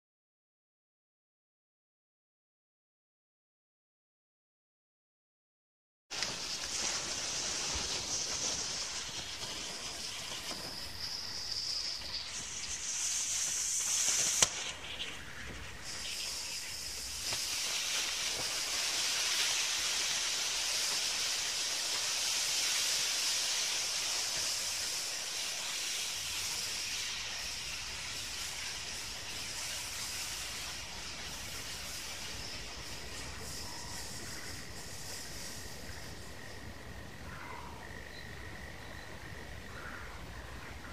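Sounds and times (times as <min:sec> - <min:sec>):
smoke balls hissing: 0:06.1 - 0:37.2
sharp pop: 0:13.9 - 0:14.8.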